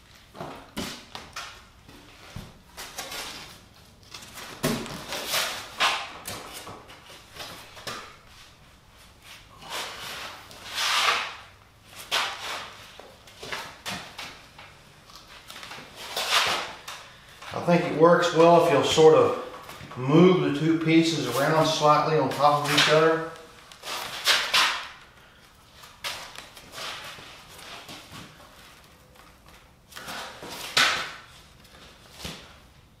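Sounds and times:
loud swishing rub: 0:09.2 - 0:12.8.

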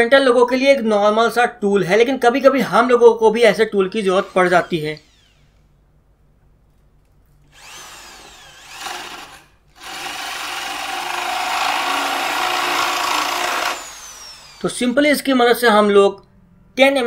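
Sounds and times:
electric drill boring into wood: 0:04.1 - 0:05.6, 0:07.5 - 0:14.7.

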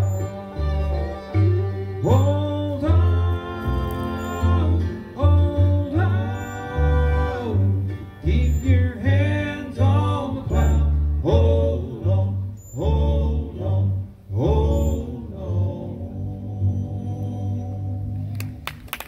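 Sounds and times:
bluegrass band playing: 0:00.0 - 0:18.6
plucked upright bass: 0:00.0 - 0:18.8.

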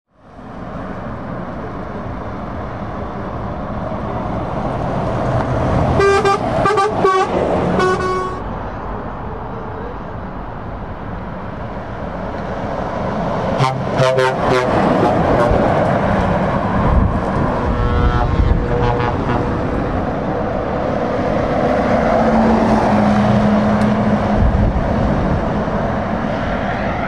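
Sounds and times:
lorries passing on road: 0:00.1 - 0:27.0
truck horn toots: 0:05.9 - 0:08.5, 0:13.5 - 0:15.8, 0:17.6 - 0:19.6.

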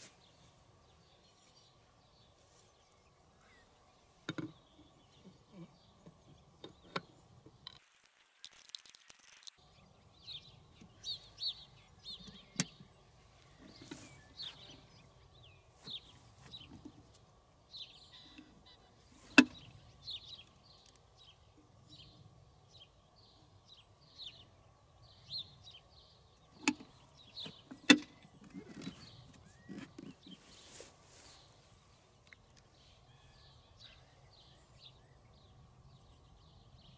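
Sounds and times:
birds chirping: 0:00.0 - 0:07.8, 0:09.6 - 0:36.9
clicks and knocks of handling: 0:04.3 - 0:04.6, 0:26.6 - 0:30.4.

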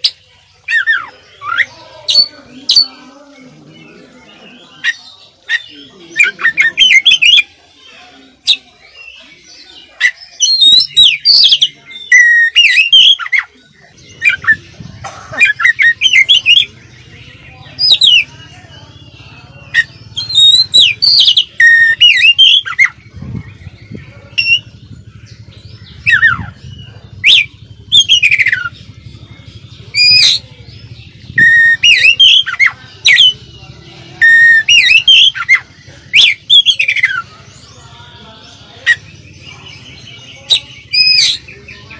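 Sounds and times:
magpie-robin whistled song: 0:03.8 - 0:38.0, 0:38.6 - 0:41.9.

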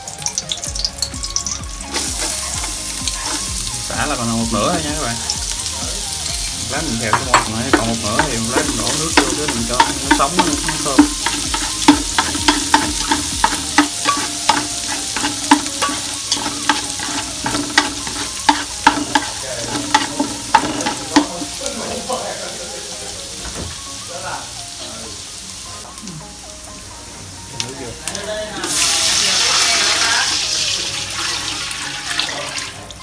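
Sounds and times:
aromatics sizzling in hot oil: 0:00.0 - 0:33.0.

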